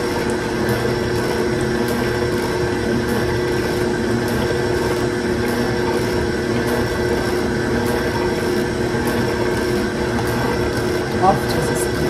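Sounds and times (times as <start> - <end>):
electric juicer motor hum: 0.0 - 12.0.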